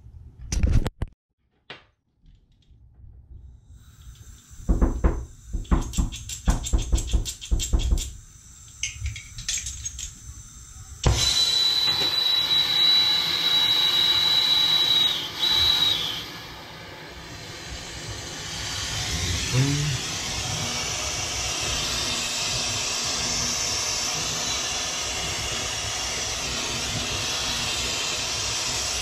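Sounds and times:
soldering torch gas hiss: 3.6 - 29.0
hard objects knocking: 4.7 - 8.1
thin high whistle: 11.0 - 16.8.

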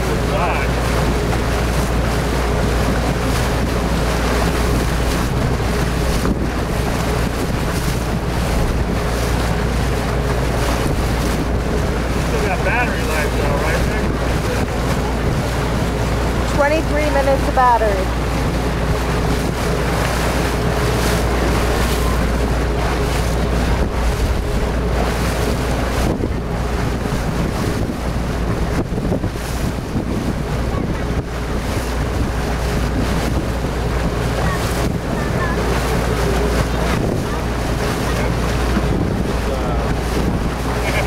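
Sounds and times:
choppy water washing: 0.0 - 41.0
constant low rumble: 0.0 - 41.0
wind buffeting microphone: 0.0 - 41.0.

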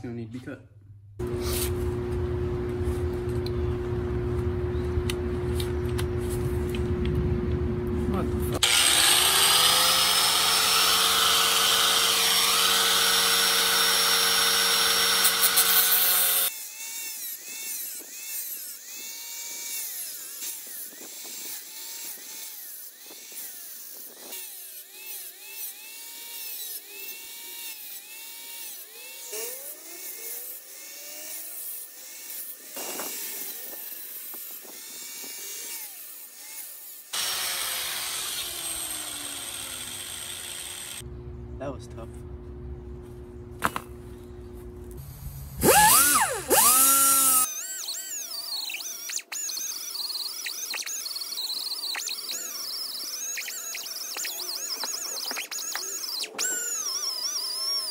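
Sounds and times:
angle grinder cutting metal: 8.5 - 41.0, 45.0 - 57.9.

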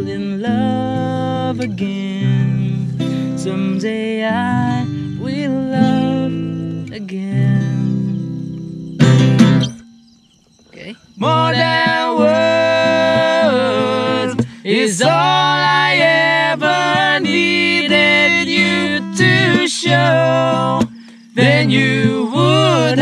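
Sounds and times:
strummed acoustic guitar: 0.0 - 23.0
men singing together: 11.2 - 23.0.

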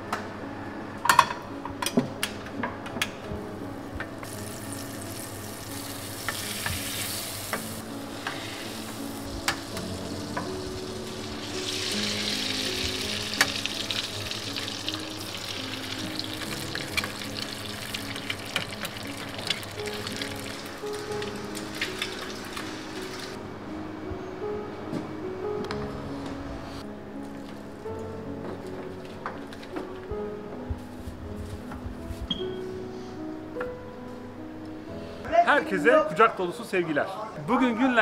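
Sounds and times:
soft music: 0.0 - 38.0
eggs sizzling in a pan: 4.2 - 23.4.

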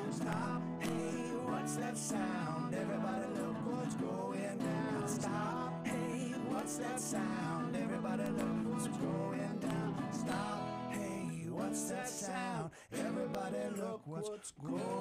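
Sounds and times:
resonator guitar sliding lead: 0.0 - 11.1
acoustic guitar strumming: 0.0 - 12.1.

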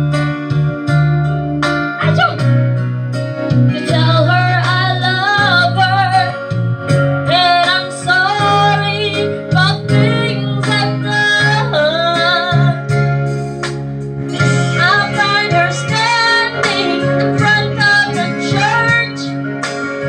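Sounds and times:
guitar accompaniment: 0.0 - 20.0
woman singing through a microphone: 3.7 - 6.6, 7.3 - 13.0, 14.4 - 19.5.

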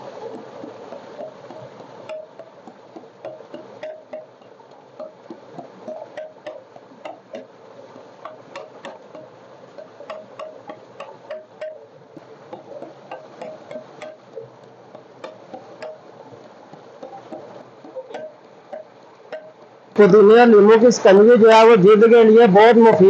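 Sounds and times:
pestle pounding in clay mortar: 1.0 - 4.4, 5.0 - 7.5, 10.1 - 11.8, 12.6 - 14.4, 15.0 - 16.0.

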